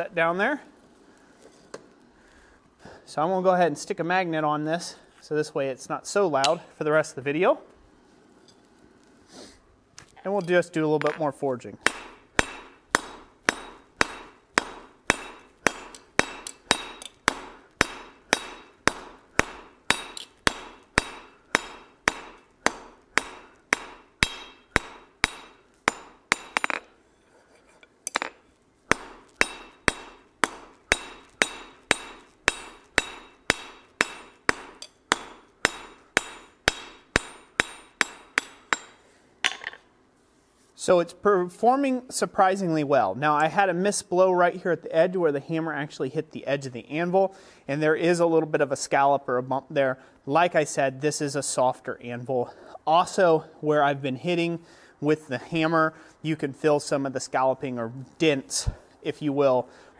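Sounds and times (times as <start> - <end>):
hammer blows on anvil: 11.8 - 26.9, 28.1 - 39.8.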